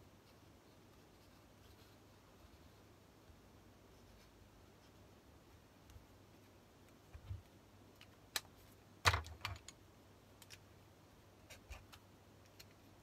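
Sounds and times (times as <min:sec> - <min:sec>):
marker pens clicking and knocking: 0:08.0 - 0:09.8.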